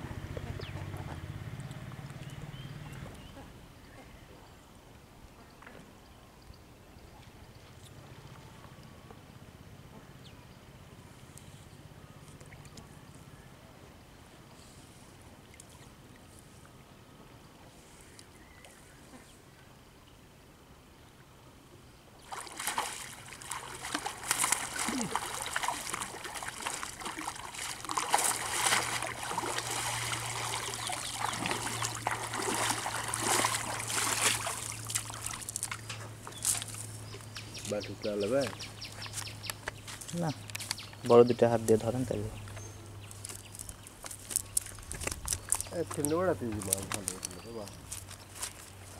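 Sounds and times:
water trickling and dripping: 0:22.2 - 0:37.5.

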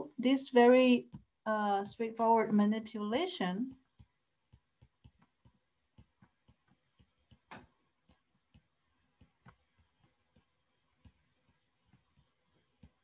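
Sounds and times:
stylus tapping on tablet screen: 0:01.0 - 0:01.4, 0:03.6 - 0:13.0.

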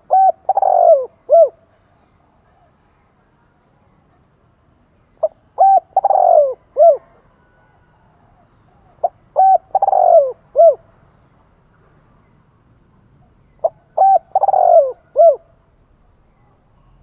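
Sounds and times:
dove cooing: 0:00.0 - 0:01.8, 0:05.2 - 0:10.9, 0:13.6 - 0:15.6.

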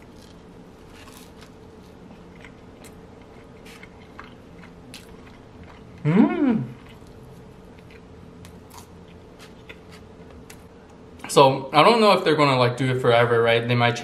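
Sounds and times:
crunchy bites and chewing: 0:00.0 - 0:10.7
person humming mmm: 0:06.0 - 0:07.0.

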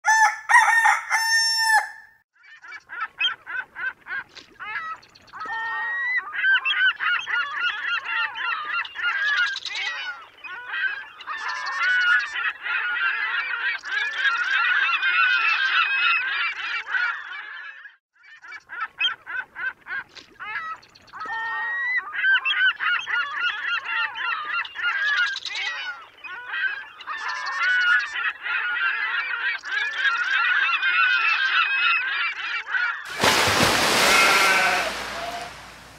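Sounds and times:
flock of birds calling: 0:05.4 - 0:17.7, 0:20.5 - 0:35.9.

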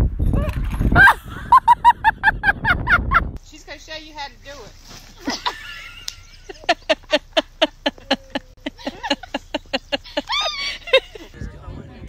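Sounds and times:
person laughing hard: 0:01.0 - 0:03.2, 0:05.2 - 0:11.4.

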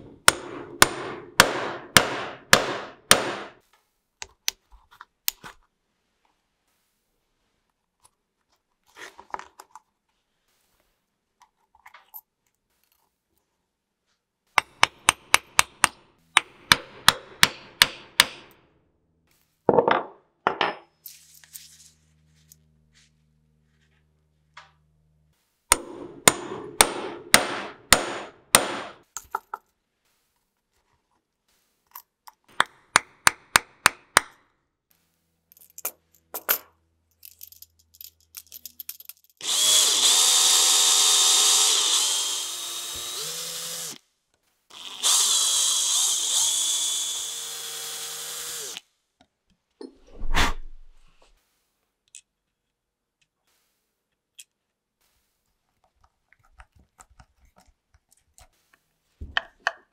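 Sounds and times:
power drill boring into wood: 0:39.4 - 0:44.0, 0:44.7 - 0:48.8.

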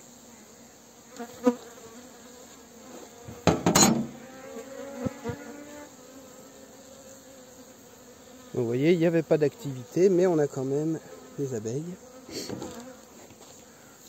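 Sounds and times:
bees buzzing in a hive: 0:00.0 - 0:14.0
hive parts clacking and knocking: 0:03.4 - 0:04.2.

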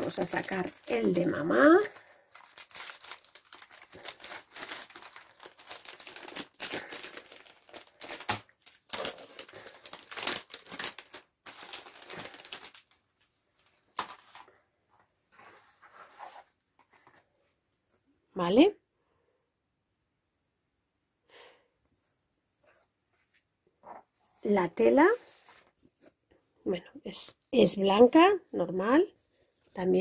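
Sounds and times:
plastic packaging crinkling: 0:00.0 - 0:14.5.

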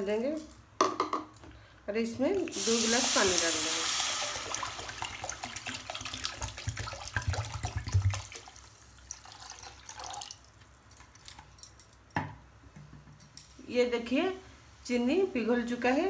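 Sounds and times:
water pouring and splashing: 0:02.5 - 0:10.5.

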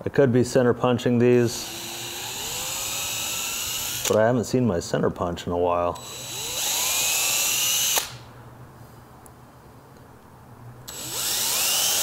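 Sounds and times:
cordless drill motor whine: 0:01.6 - 0:04.2, 0:06.0 - 0:08.2, 0:10.9 - 0:12.0.

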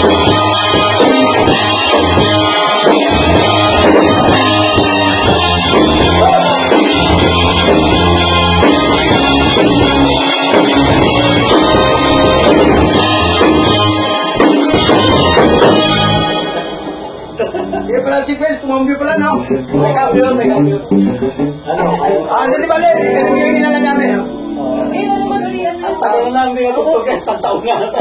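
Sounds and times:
drum kit steady beat: 0:00.0 - 0:17.8, 0:19.1 - 0:21.8
live band playing: 0:00.0 - 0:26.0.

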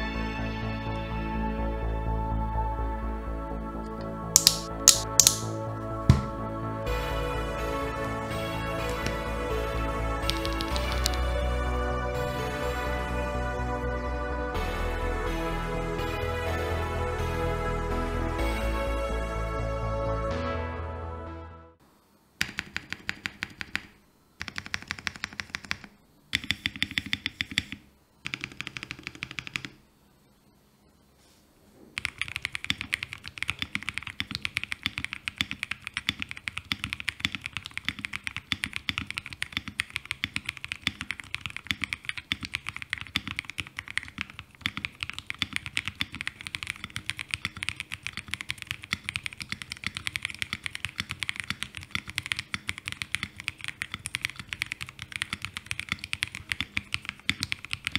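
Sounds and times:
typing on mechanical keyboard: 0:04.4 - 0:05.5, 0:10.2 - 0:11.2, 0:22.4 - 0:29.8, 0:32.0 - 0:57.9.

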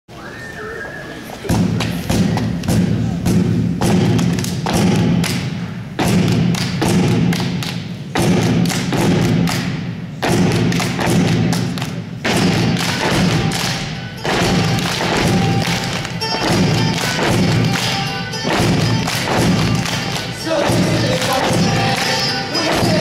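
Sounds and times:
cajon slapped by hand: 0:01.5 - 0:23.0
hand claps: 0:01.6 - 0:23.0
mandolin strummed: 0:12.4 - 0:23.0.

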